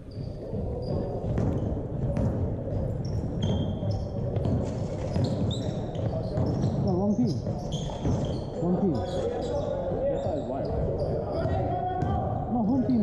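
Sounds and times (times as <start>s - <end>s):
sneakers squeaking on court: 0.0s - 11.7s
murmur of voices: 0.0s - 13.0s
basketball bouncing: 0.1s - 8.5s.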